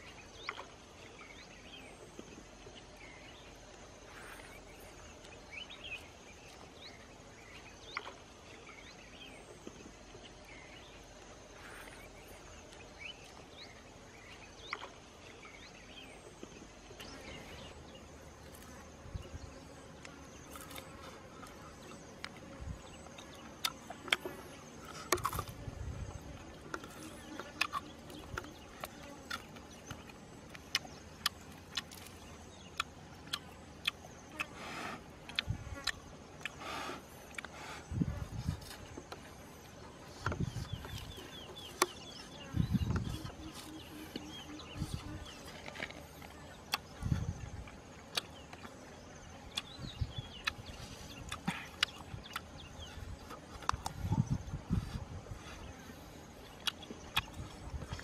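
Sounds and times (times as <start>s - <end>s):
high insect buzz: 1.4s - 58.0s
grilled frog cracking apart: 26.7s - 34.5s.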